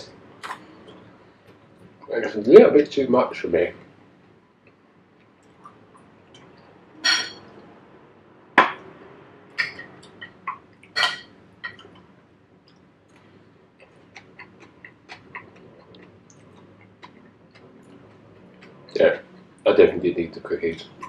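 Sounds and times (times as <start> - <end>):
metal spoon scraping ceramic plate: 11.0 - 11.8
chewing clicks: 12.7 - 19.6.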